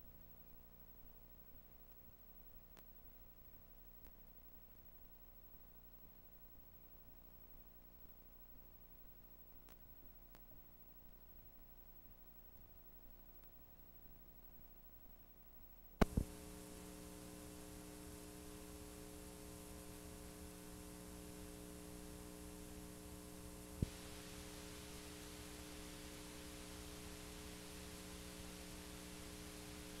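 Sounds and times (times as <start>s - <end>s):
electrical hum with hiss: 0.0s - 30.0s
tape playback click: 16.0s - 16.4s.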